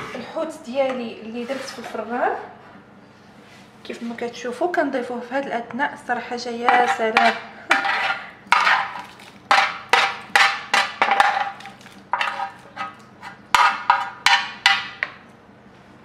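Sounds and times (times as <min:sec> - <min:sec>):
utensil clanking on metal tray: 0:06.6 - 0:15.2.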